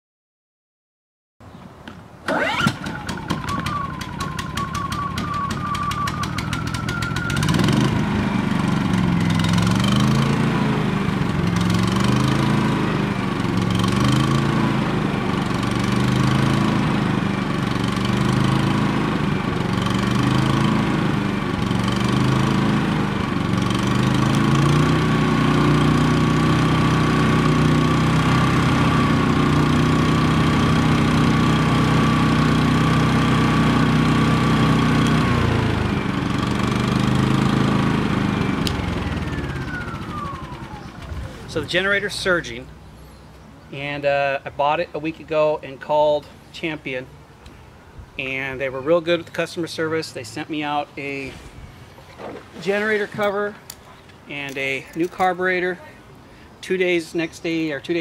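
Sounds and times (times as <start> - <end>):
generator engine surging: 2.3 - 42.9.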